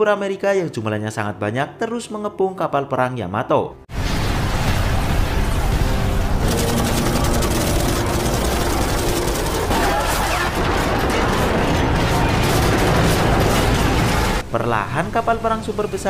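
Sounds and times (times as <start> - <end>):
battle noise: 6.4 - 14.4
rapid gunfire: 6.4 - 14.4.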